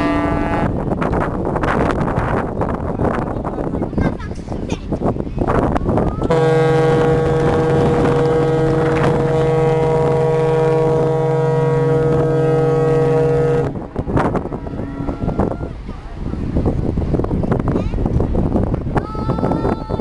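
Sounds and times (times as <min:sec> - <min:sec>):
ferry horn blast: 0:00.0 - 0:00.8, 0:06.2 - 0:15.6
wind buffeting microphone: 0:00.0 - 0:20.0.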